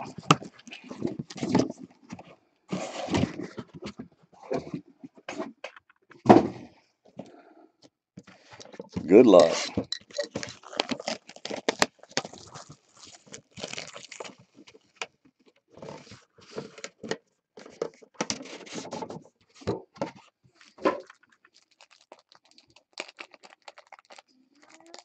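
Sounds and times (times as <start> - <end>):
cardboard scraping and rustling: 0.0 - 5.6.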